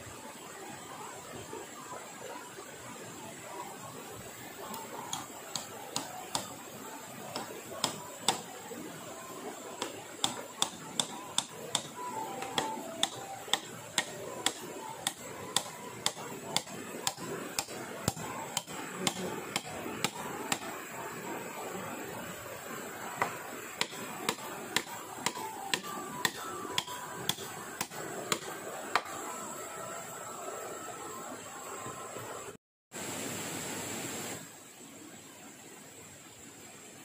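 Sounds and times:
hand tool striking wood: 5.1s - 6.5s, 7.3s - 8.5s, 9.8s - 20.7s, 23.2s - 29.1s.

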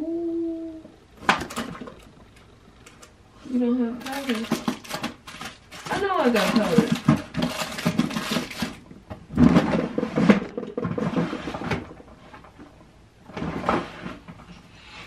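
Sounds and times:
contents rummaged clattering: 1.2s - 2.2s, 4.0s - 12.6s
drawers and cupboards opening and shutting: 4.0s - 14.6s.

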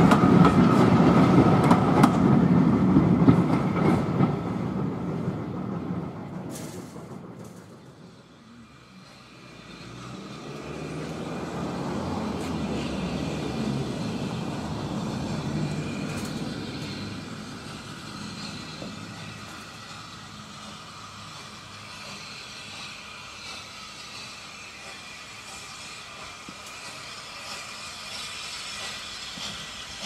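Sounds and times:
locomotive rumbling: 0.0s - 30.0s.

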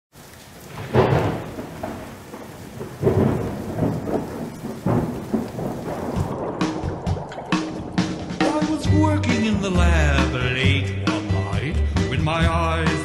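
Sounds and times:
steady rain: 0.1s - 8.9s
thunder claps: 0.2s - 10.8s.

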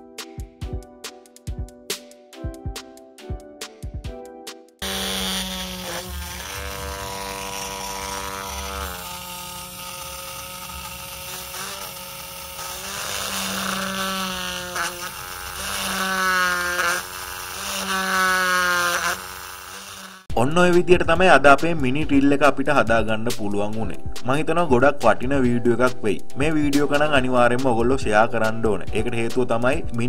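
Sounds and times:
music: 0.0s - 11.5s, 20.3s - 30.0s
mini drill whining: 4.8s - 20.3s.

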